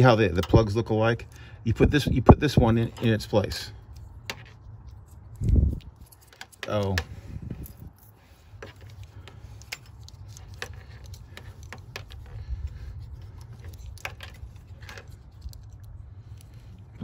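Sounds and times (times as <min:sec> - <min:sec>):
low steady rumble: 0:00.0 - 0:17.0
plastic connectors clicking and rattling: 0:02.6 - 0:07.6, 0:08.5 - 0:17.0.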